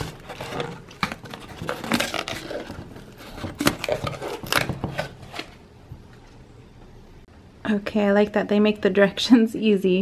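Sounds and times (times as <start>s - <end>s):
foil seal crinkling and tearing: 0.0s - 5.6s.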